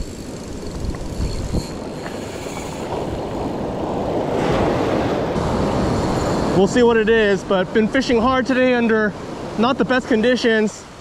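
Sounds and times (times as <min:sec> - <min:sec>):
wind on microphone: 0:00.0 - 0:07.3
ocean surf breaking: 0:00.0 - 0:11.0.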